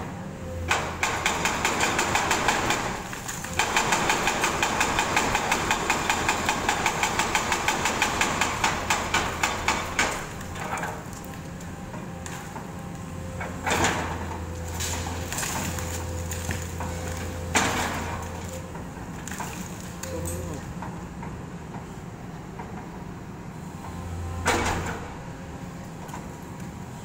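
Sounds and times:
diesel engine running: 0.0 - 27.0
hydraulic breaker hammering concrete: 0.7 - 11.0.

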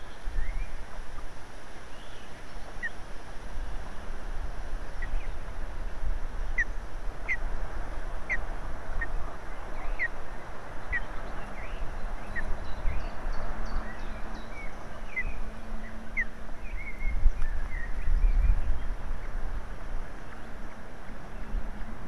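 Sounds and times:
wind noise on microphone: 0.0 - 22.0.

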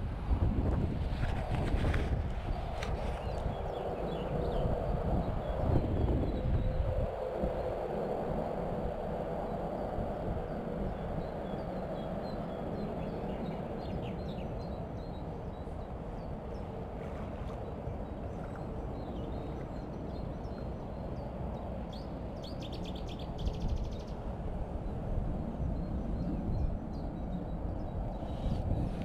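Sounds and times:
small birds chirping: 9.8 - 16.8, 17.5 - 24.2.

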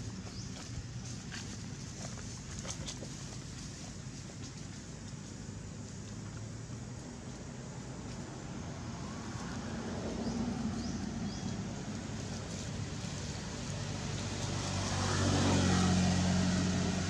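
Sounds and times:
vehicle engine hum: 0.0 - 17.0.

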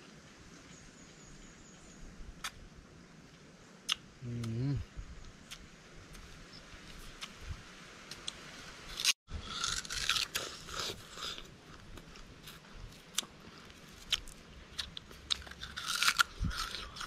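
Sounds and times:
sugar cane crunching and tearing: 8.9 - 17.0.

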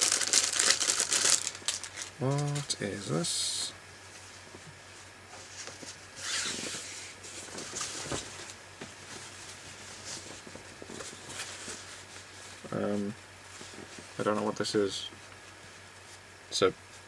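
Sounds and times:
cloth and packaging rustling: 0.0 - 2.7, 5.4 - 14.2.

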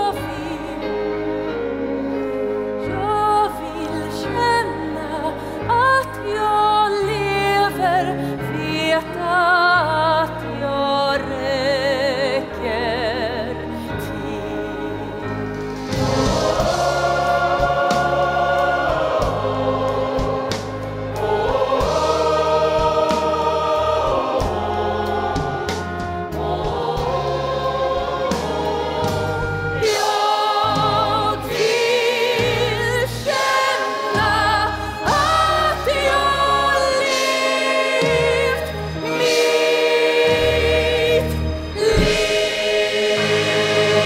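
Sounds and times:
choir singing: 0.0 - 44.0
instrumental backing: 13.4 - 44.0.

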